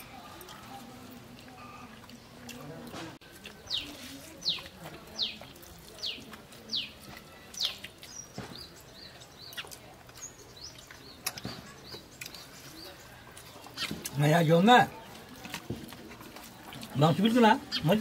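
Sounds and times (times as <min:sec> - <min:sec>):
bird chirps: 0:03.4 - 0:14.1.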